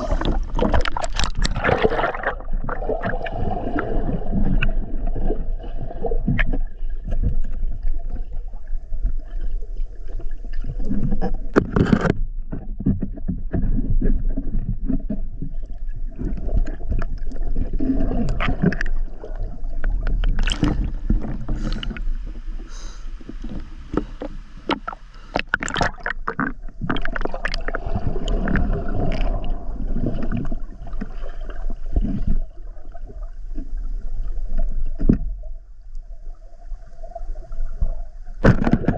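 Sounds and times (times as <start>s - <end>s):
underwater clicks and knocks: 0.0s - 3.4s, 10.5s - 22.3s, 23.2s - 31.2s, 34.5s - 35.4s, 38.4s - 38.9s
low underwater rumble: 0.0s - 38.9s
muffled underwater water rushing: 0.0s - 38.9s.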